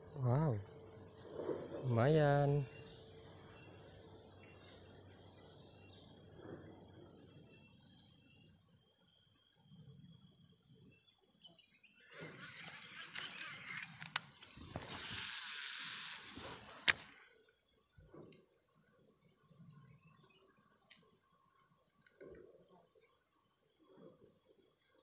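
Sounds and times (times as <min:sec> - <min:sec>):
insects chirring: 0:00.0 - 0:25.0
sharp clicks: 0:12.4 - 0:17.3.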